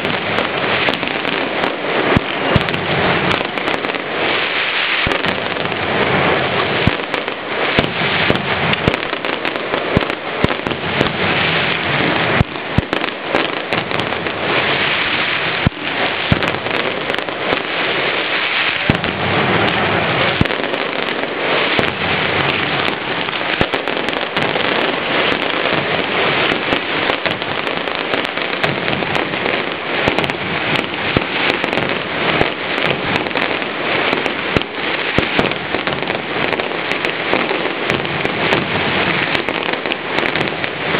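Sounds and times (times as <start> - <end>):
firecrackers rattling: 0.0 - 40.9.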